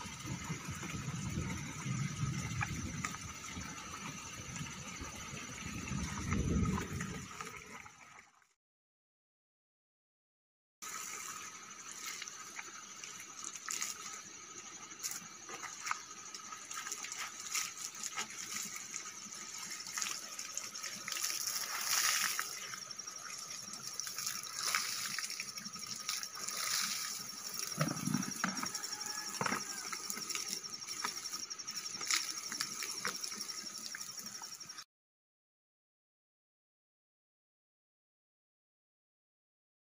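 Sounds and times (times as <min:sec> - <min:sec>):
water splashing and dripping: 0:00.0 - 0:08.5, 0:10.8 - 0:34.8
water running off cloth: 0:10.8 - 0:34.5.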